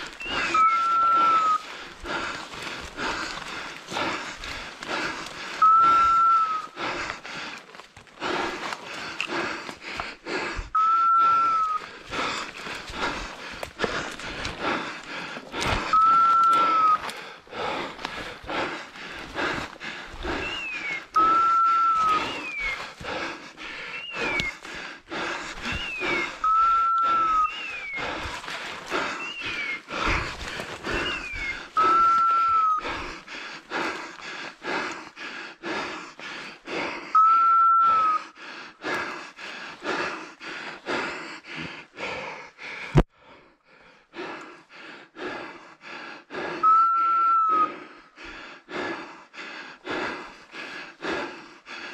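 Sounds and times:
footsteps through dry brush: 0.0 - 10.5, 11.4 - 34.8.

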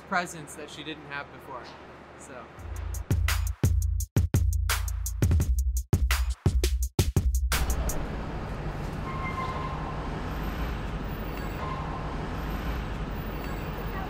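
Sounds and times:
low rumble of traffic: 7.5 - 14.0.

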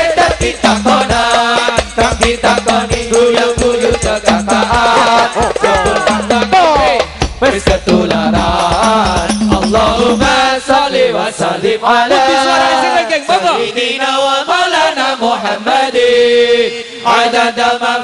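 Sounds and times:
voices chanting: 0.0 - 7.0, 7.9 - 18.0.

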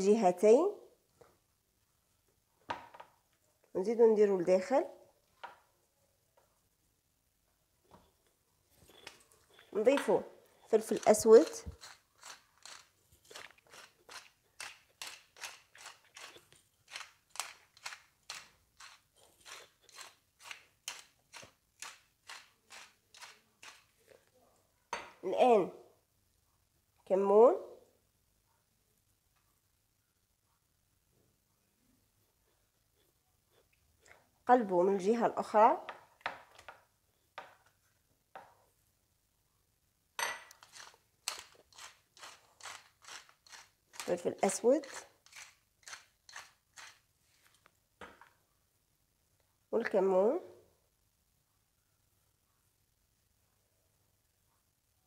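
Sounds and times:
pepper mill grinding: 8.9 - 24.0, 40.5 - 47.1.

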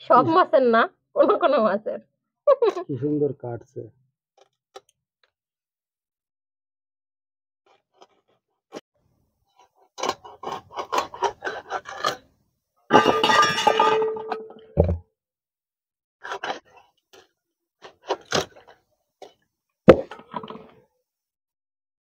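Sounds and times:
clatter in steel bowl: 12.9 - 14.4.

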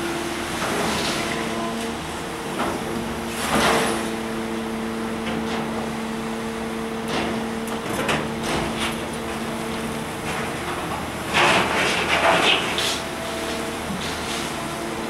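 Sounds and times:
excavator humming: 0.0 - 15.0.

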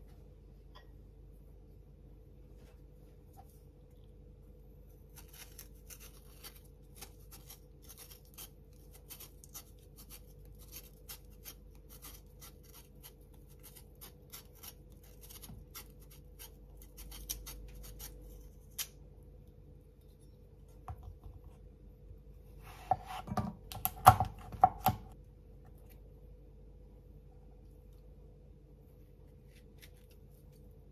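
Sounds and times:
knife peeling fruit skin: 5.0 - 19.1.

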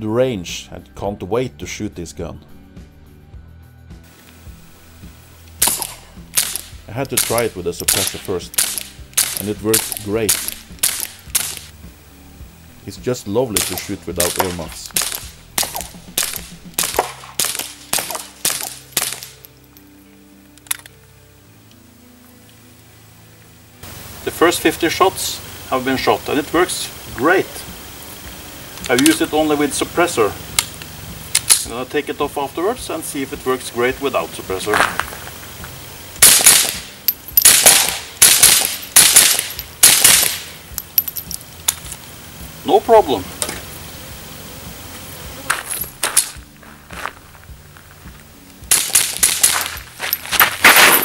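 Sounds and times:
suppressed pistol shots: 5.5 - 11.7, 13.6 - 19.5, 36.2 - 40.6, 48.7 - 49.8.

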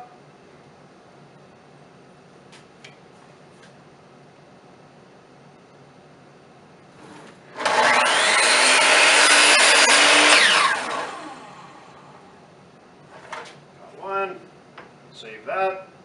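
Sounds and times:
saw cutting wooden board: 7.0 - 11.9
miter saw whining: 7.5 - 12.3.

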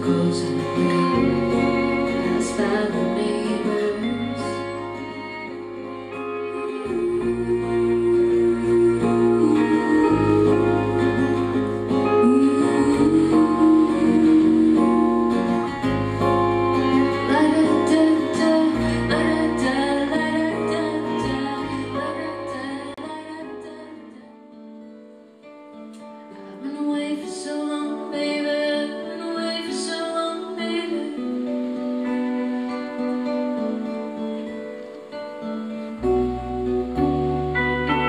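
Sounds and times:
bowed violin sliding: 0.0 - 22.3
strummed acoustic guitar: 0.0 - 22.9
bass: 0.0 - 24.1, 35.9 - 38.0
woman singing: 0.0 - 24.5, 26.3 - 33.8, 36.6 - 38.0.

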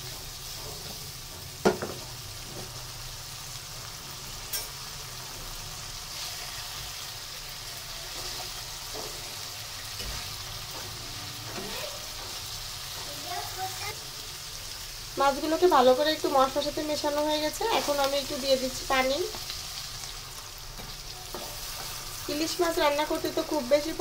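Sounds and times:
spatula stirring in wok: 0.0 - 3.5, 16.2 - 24.0
fish sizzling in oil: 0.0 - 24.0.

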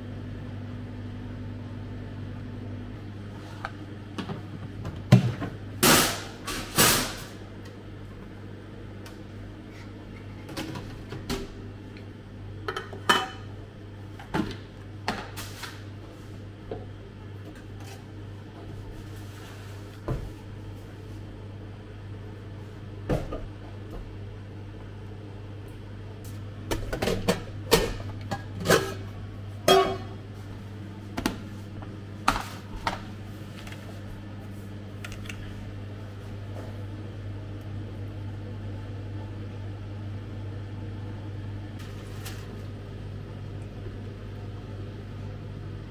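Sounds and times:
low electrical hum: 0.0 - 45.9
pans and utensils clattering: 29.7 - 30.2.

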